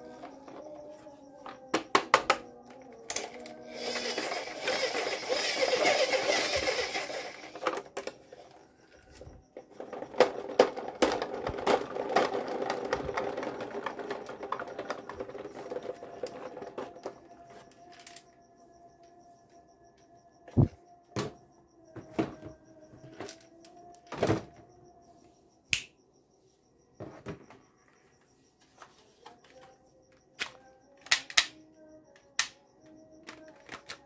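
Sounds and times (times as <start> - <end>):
plastic toy clicks and knocks: 1.4 - 8.3, 9.6 - 18.3, 30.4 - 31.6, 32.2 - 34.0
toy wheels rattling whir: 3.0 - 9.0, 9.6 - 18.3.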